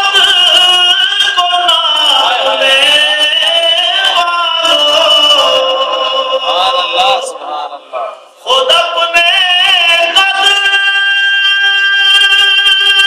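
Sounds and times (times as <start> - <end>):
man singing long wavering notes: 0.0 - 7.4.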